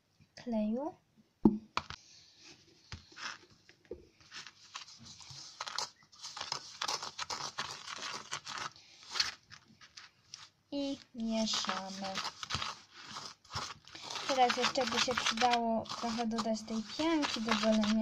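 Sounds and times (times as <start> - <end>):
plastic spoon scraping sand: 3.0 - 3.5, 4.3 - 18.0.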